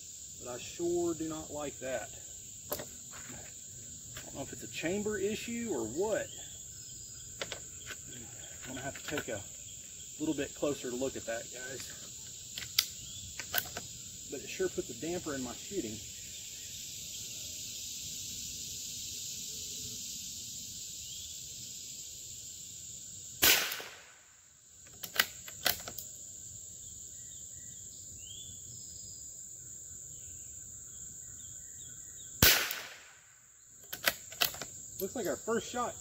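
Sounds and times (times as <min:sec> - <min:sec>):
crickets trilling: 0:00.0 - 0:36.0
sharp clicks: 0:12.5 - 0:13.8, 0:24.9 - 0:26.0, 0:33.8 - 0:34.7
rifle shots: 0:23.4 - 0:24.2, 0:32.4 - 0:33.2.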